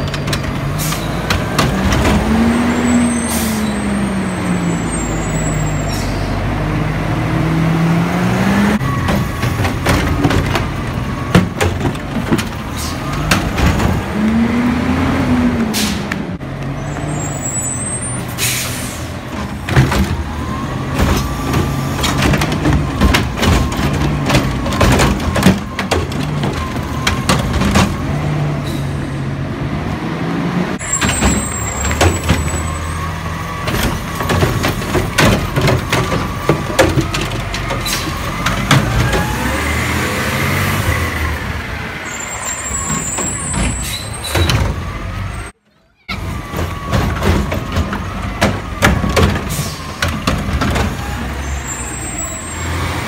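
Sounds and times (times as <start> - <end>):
carts and arm clanking: 0.0 - 6.4, 8.8 - 29.3, 30.8 - 53.0
diesel engine revving: 0.0 - 45.6, 46.2 - 53.0
air brakes hissing: 5.2 - 6.4, 12.7 - 13.1, 15.7 - 16.1, 17.2 - 19.2, 28.6 - 29.2, 49.4 - 50.0.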